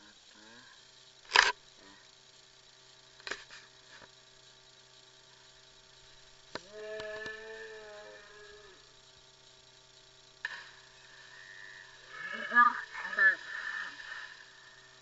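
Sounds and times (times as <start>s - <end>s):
insect chorus chirring: 0.0s - 15.0s.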